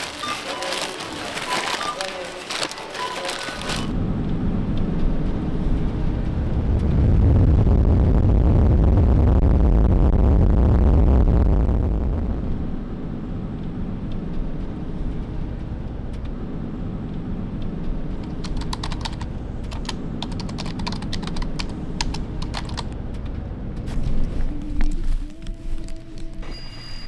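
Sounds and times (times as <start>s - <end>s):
steady low hum: 3.7s - 27.0s
keyboard typing clicks: 18.2s - 23.0s.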